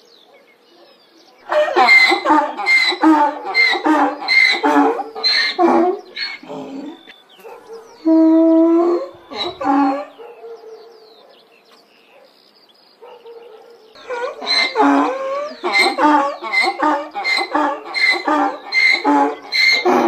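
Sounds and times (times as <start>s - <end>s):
donkey braying: 1.5s - 7.1s, 8.0s - 10.2s, 14.0s - 20.0s.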